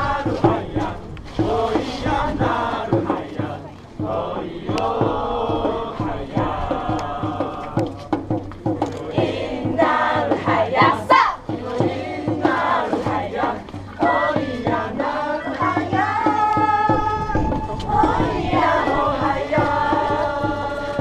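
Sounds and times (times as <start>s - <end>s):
group singing and chanting: 0.0s - 21.0s
rising shout: 16.7s - 18.1s.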